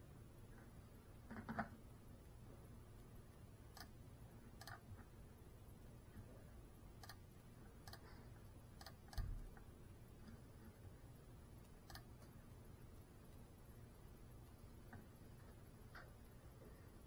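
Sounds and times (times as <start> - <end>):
faint clicks: 7.0 - 8.1, 11.6 - 12.4.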